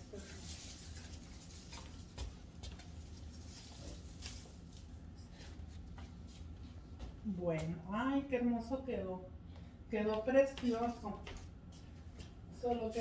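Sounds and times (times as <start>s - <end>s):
low steady room hum: 0.0s - 13.0s
faint light taps and rustles: 10.1s - 13.0s.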